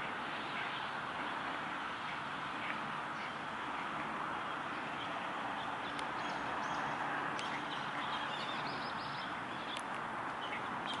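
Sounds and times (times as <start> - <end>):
outdoor background hiss: 0.0 - 11.0
small birds chirping: 0.0 - 11.0.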